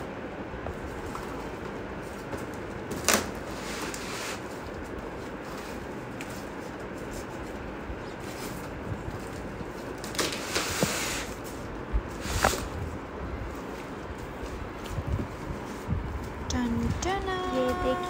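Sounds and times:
cardboard rustling and scraping: 0.7 - 12.8.

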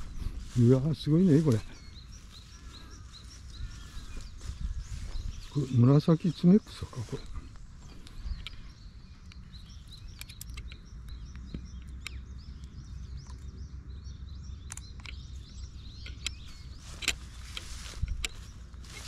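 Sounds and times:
wind rumble on microphone: 0.0 - 5.8, 6.9 - 19.0
small birds chirping: 0.0 - 19.0
sharp clicks: 7.5 - 13.6, 14.6 - 18.4.

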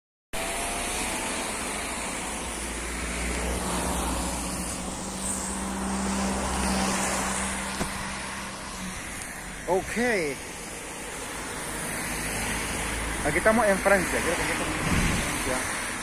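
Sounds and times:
car engines running: 0.4 - 16.0
tyres hissing on wet road: 0.4 - 16.0.

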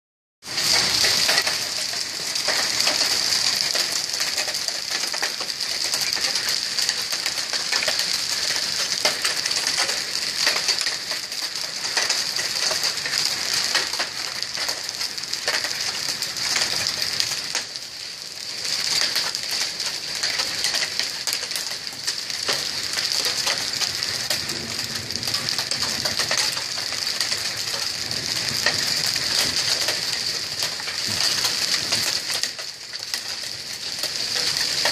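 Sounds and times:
hail and rain on concrete: 0.4 - 34.9.

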